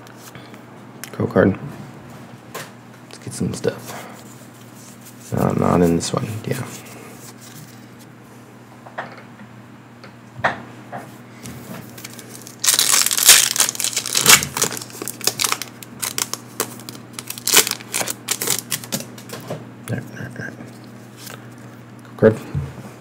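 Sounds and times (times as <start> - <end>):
foil wrapper crinkling and tearing: 11.9 - 19.2.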